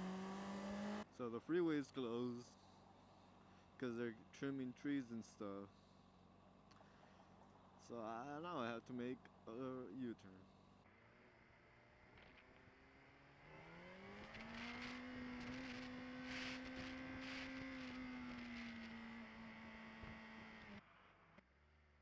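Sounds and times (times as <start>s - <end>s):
motorcycle engine accelerating: 0.0s - 1.0s, 10.4s - 21.3s.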